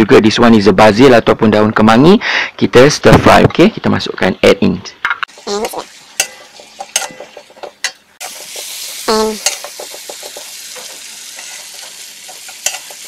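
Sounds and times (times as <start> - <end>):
metal spatula tapping and scraping: 5.1 - 13.0
food sizzling in a wok: 5.3 - 13.0.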